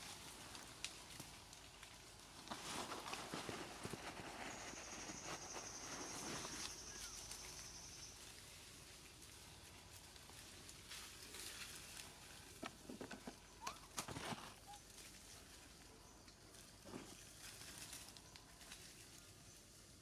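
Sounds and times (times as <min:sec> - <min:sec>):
dry leaves rustling and crackling: 0:00.0 - 0:20.0
faint chirp: 0:03.5 - 0:08.5.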